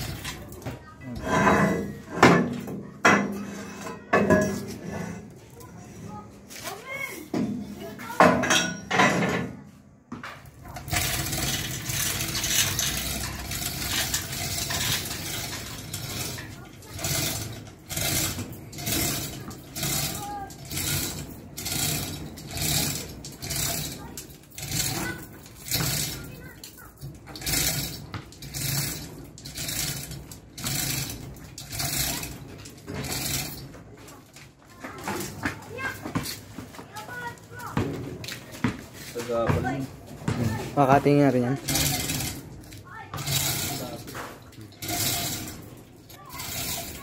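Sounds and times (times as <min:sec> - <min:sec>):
metal clank: 0:07.4 - 0:09.6
chain hoist ratcheting clatter: 0:10.6 - 0:36.4, 0:41.5 - 0:47.0.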